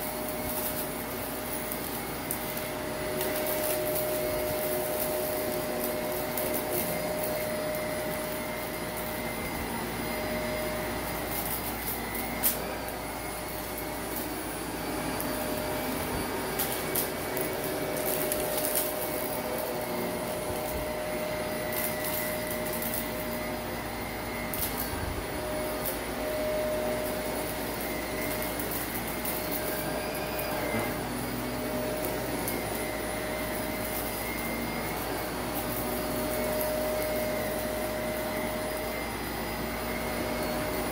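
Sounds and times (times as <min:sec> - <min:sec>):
debris clicking in vacuum: 0:00.0 - 0:09.2, 0:11.1 - 0:14.4, 0:15.1 - 0:23.4, 0:24.4 - 0:25.0, 0:26.9 - 0:29.9
upright vacuum running: 0:00.0 - 0:40.9.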